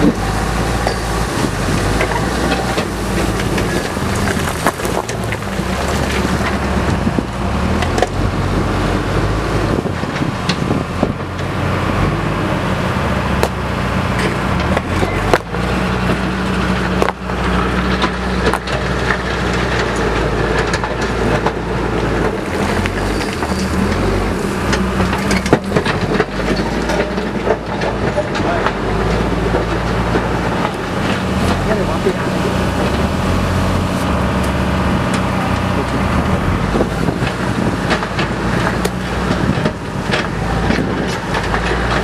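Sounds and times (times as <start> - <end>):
diesel engine under load: 0.0 - 42.0
stones knocking: 0.1 - 6.7.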